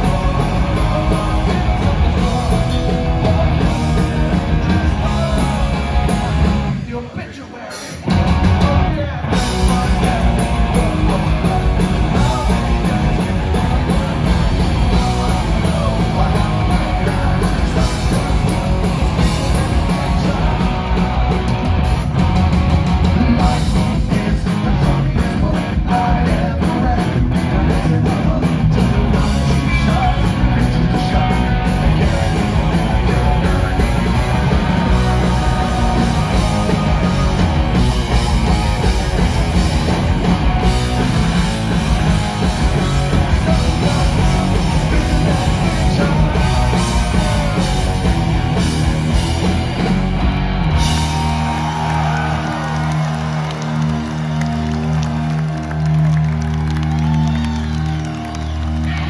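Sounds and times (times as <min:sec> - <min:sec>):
lead singer singing: 0:00.0 - 0:21.5, 0:23.2 - 0:48.8
punk rock band playing live: 0:00.0 - 0:59.0.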